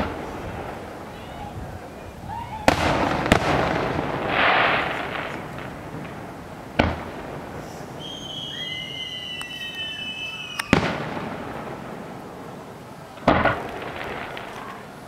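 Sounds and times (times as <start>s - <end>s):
firework bangs: 0.0s - 15.0s
firework whistles: 7.4s - 11.2s.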